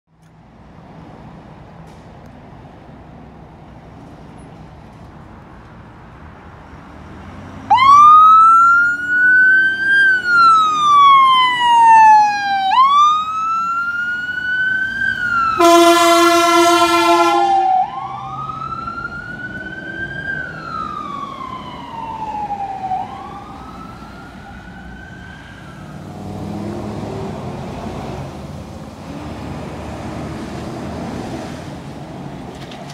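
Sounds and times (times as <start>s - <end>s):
ambulance siren wailing: 7.7s - 26.2s
vehicle horn blast: 15.6s - 17.8s.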